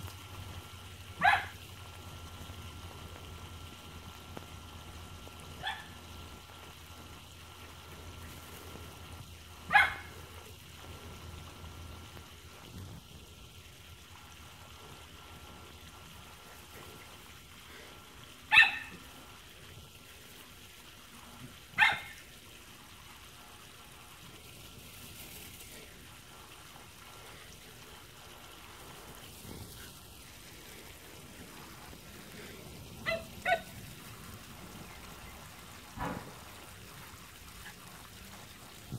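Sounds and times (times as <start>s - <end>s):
small dog barking: 1.2s - 1.6s, 5.6s - 6.0s, 9.6s - 10.2s, 18.5s - 19.0s, 21.8s - 22.2s, 33.0s - 33.8s.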